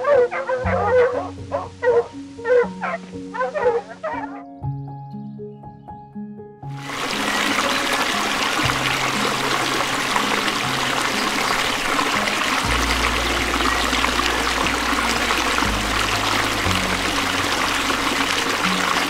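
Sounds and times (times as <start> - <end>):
background music with low notes: 0.0 - 19.0
running water rushing: 6.8 - 19.0.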